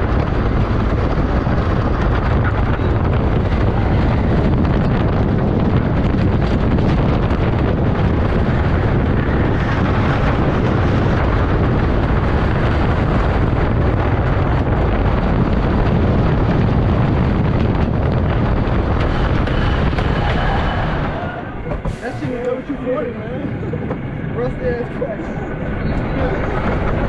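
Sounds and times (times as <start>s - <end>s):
roller coaster rumbling on track: 0.0s - 27.0s
wind on microphone: 0.0s - 27.0s.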